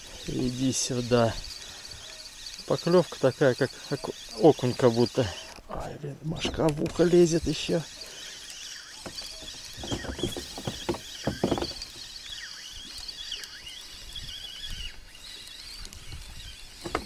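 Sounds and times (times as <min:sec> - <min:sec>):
faint high bird chirping: 0:00.0 - 0:05.5, 0:07.8 - 0:16.6
rod handling knocks and reel clicks: 0:06.4 - 0:12.2, 0:16.8 - 0:17.0.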